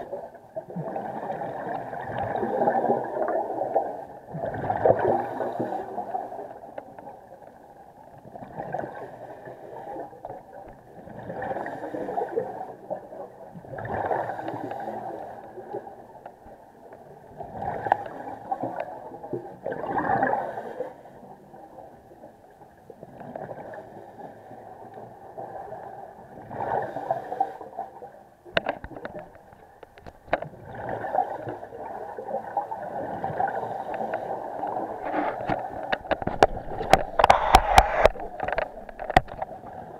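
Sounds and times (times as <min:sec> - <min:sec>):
underwater breath bubbling: 0:04.4 - 0:06.5, 0:32.9 - 0:39.8.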